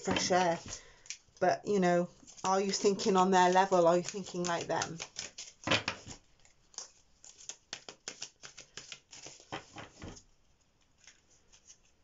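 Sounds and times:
cards being shuffled: 2.2s - 10.0s, 11.0s - 12.0s.

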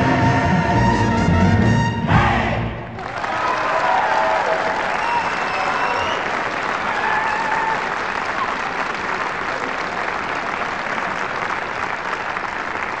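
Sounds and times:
audience applause: 3.0s - 13.0s.

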